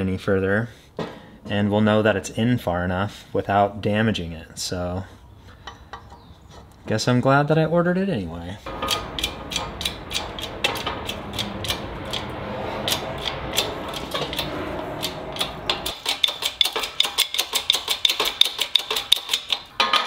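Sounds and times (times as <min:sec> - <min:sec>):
low rumble: 0:08.7 - 0:16.6
sharp metallic clicks: 0:08.7 - 0:19.7.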